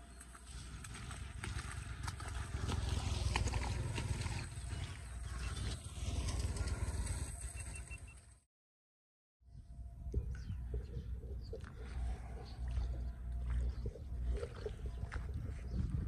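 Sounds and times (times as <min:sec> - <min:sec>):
footsteps splashing through water: 0:00.0 - 0:05.0, 0:11.5 - 0:16.0
wind rumble on microphone: 0:09.5 - 0:16.0.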